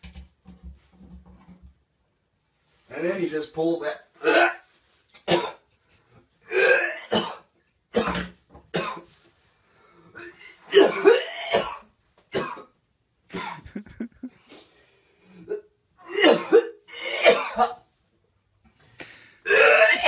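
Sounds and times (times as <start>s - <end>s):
man gagging and retching: 6.5s - 7.4s, 13.3s - 14.4s, 19.5s - 20.0s.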